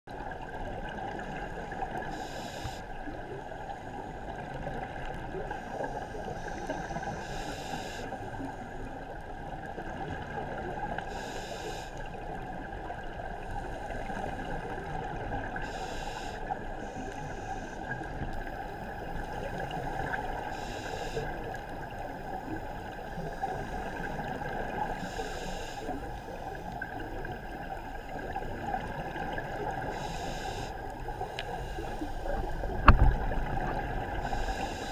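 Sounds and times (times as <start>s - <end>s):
muffled underwater rumble: 0.1s - 34.9s
diver breathing through regulator: 2.0s - 2.9s, 5.5s - 8.4s, 11.1s - 12.0s, 15.6s - 27.3s, 29.2s - 34.9s.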